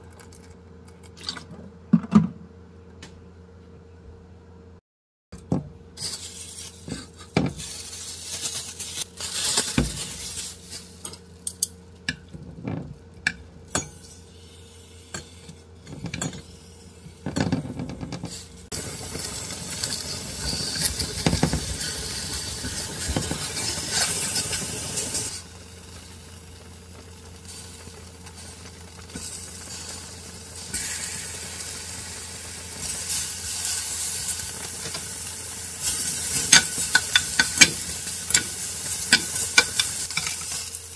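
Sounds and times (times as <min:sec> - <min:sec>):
meat sizzling in a pan: 0:06.0 - 0:11.2, 0:18.3 - 0:40.9
frying pan and utensils clinking: 0:15.1 - 0:18.4, 0:35.8 - 0:40.9.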